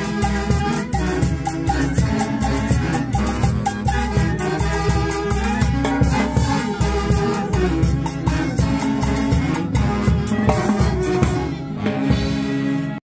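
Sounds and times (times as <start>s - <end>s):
drum kit and timbales beat: 0.0s - 13.0s
saxophones playing melody: 0.0s - 13.0s.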